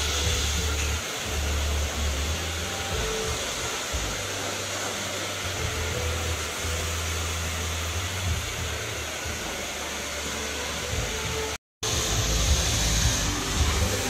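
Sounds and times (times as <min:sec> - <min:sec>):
hair dryer blowing: 0:00.0 - 0:14.0.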